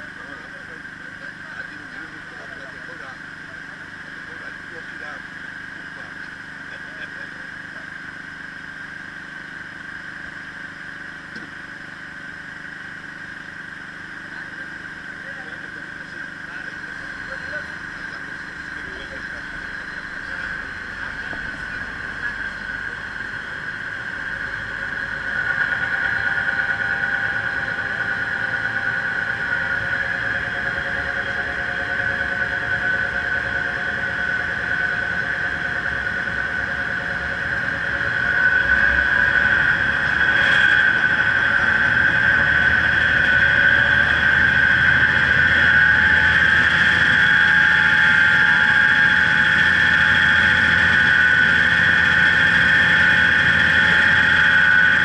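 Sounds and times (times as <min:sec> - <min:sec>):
blower high-pitched whine: 0:00.0 - 0:55.0.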